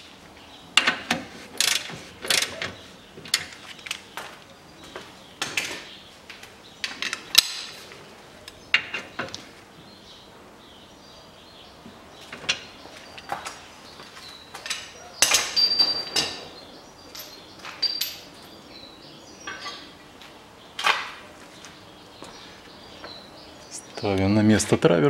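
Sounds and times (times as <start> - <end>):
metal tools clinking and clanking: 14.6 - 16.5, 17.1 - 18.6, 19.4 - 20.4.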